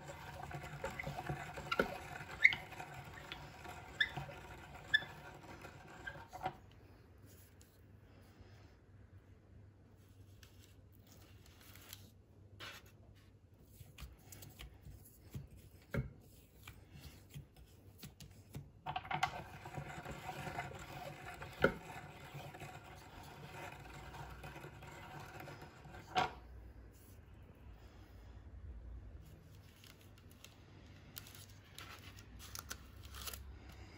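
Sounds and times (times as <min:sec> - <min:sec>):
hand-cranked grinder grinding: 0:00.0 - 0:06.6, 0:18.9 - 0:26.4.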